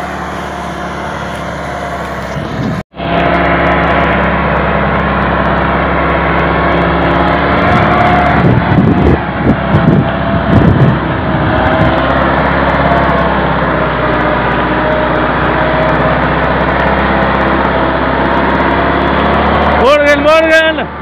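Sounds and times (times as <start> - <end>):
tractor diesel engine under load: 0.0 - 21.0
low thumps: 3.6 - 12.5.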